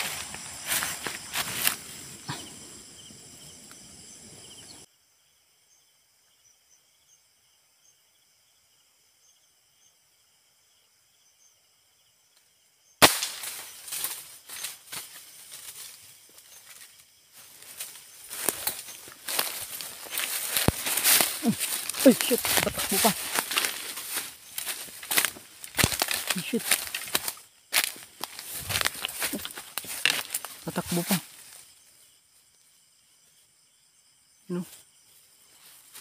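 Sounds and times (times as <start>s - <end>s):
footsteps in dry leaves: 0.0s - 2.1s, 13.3s - 31.7s
insects trilling: 0.0s - 36.0s
sharp crack: 13.0s - 14.2s, 19.3s - 30.4s.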